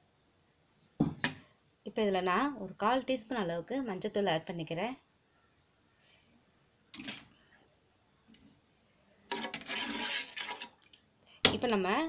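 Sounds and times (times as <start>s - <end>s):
spoon scraping and swishing in pan: 9.3s - 10.9s.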